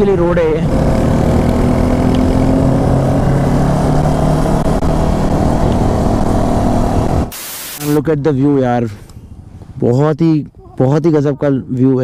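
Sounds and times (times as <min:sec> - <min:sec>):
motorcycle engine running: 0:00.0 - 0:07.3, 0:07.9 - 0:11.0
wind noise on microphone: 0:03.6 - 0:07.3.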